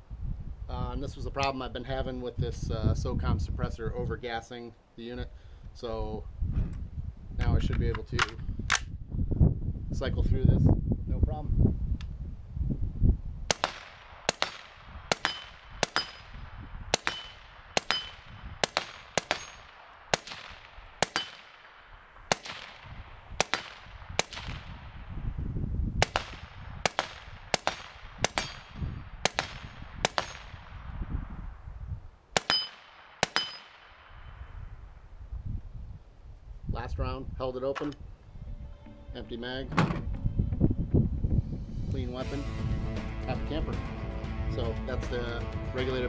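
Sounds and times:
suppressed rifle shots: 13.5 - 24.8, 26.0 - 30.8, 32.3 - 34.3.

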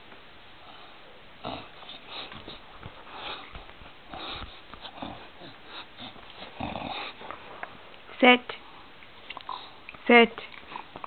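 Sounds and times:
dog sniffing: 0.7 - 7.5.

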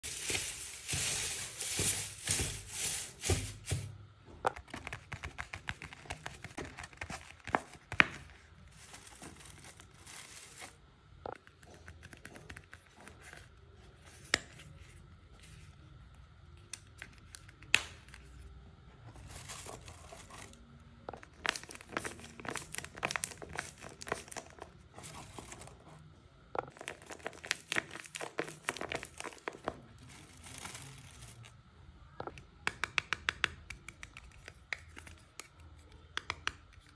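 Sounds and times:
paper crinkling and rustling: 0.0 - 3.9, 4.6 - 10.8, 19.1 - 26.0, 26.7 - 31.6.

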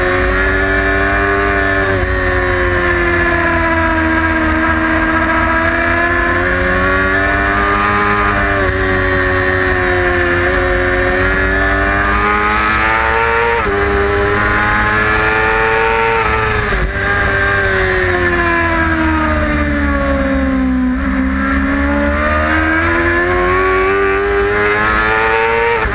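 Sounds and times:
motorcycle engine at high revs: 0.0 - 25.9.

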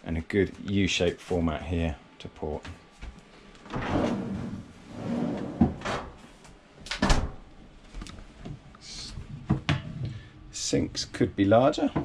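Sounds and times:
refrigerator drawer sliding on runners: 3.7 - 6.0.

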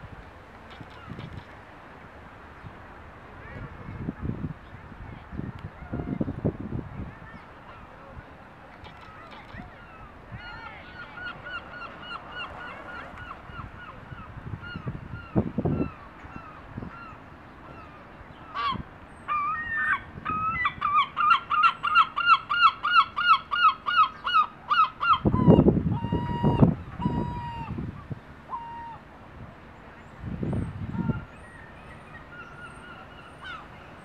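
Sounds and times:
gull yelping calls: 18.6 - 27.7, 28.5 - 29.0.

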